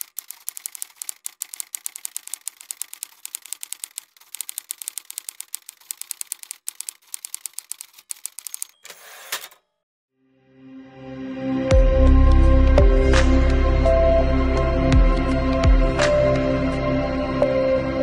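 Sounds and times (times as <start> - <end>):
typewriter keystrokes: 0.0 - 8.8.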